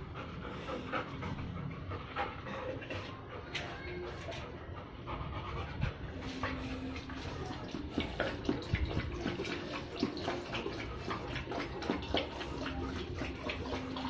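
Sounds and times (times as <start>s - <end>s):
dog lapping water: 5.1s - 14.0s.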